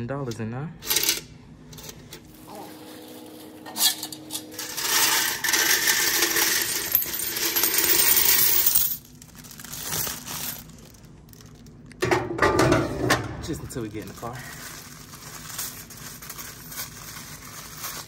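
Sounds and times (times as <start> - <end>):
coins jingling into bag: 4.6 - 10.7.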